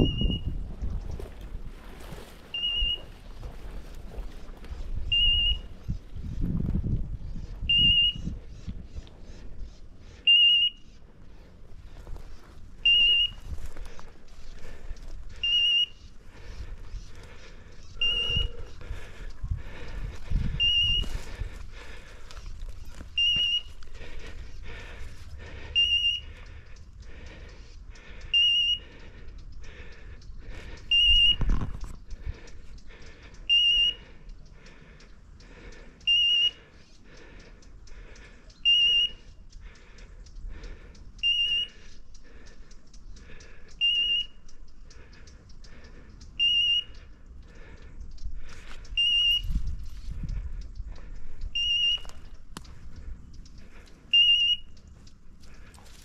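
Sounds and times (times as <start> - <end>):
steps rustling through undergrowth: 0.6 - 5.0, 11.4 - 15.4, 18.2 - 25.3, 54.9 - 56.0.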